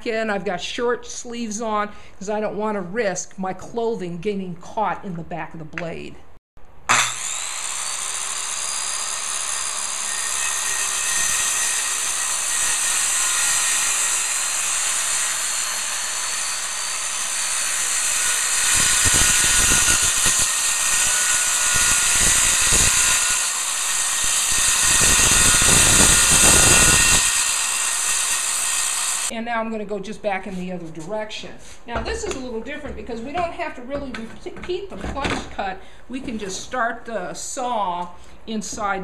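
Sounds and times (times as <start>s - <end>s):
circular saw whine: 6.9s - 29.3s
saw blade cutting particleboard: 6.9s - 29.3s.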